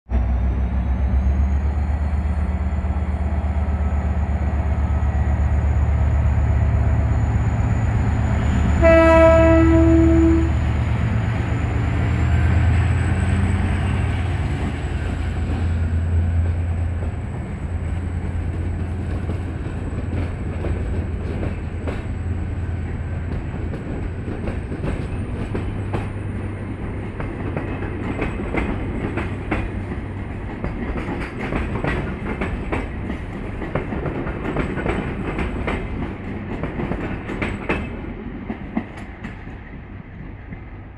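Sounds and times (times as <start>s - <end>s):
train wheels clicking on rail joints: 2.8s - 40.9s
locomotive horn blast: 8.7s - 10.6s.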